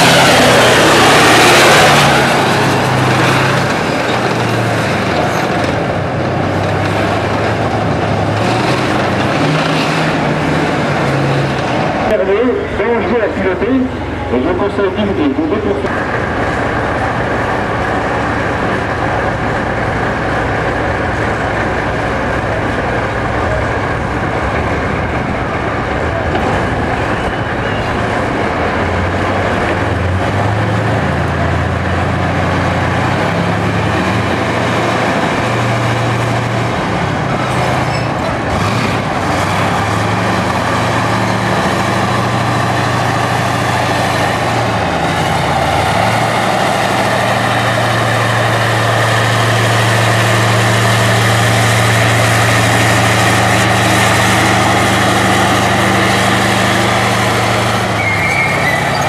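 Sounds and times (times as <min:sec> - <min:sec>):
tank diesel engine running: 0:00.0 - 0:59.0.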